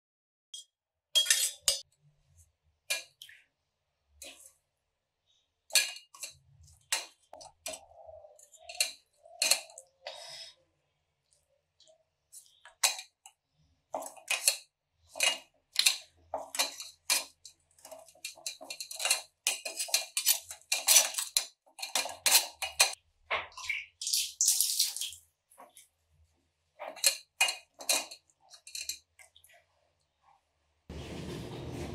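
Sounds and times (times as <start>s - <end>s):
spoon scraping metal strainer: 1.2s - 1.8s, 5.7s - 9.9s, 14.0s - 23.0s.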